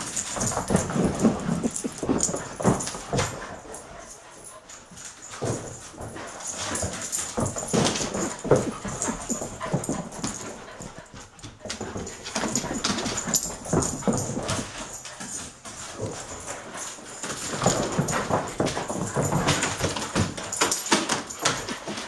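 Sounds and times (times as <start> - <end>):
paws scuffling on wooden floor: 0.0 - 22.0
dogs whining: 0.4 - 4.1.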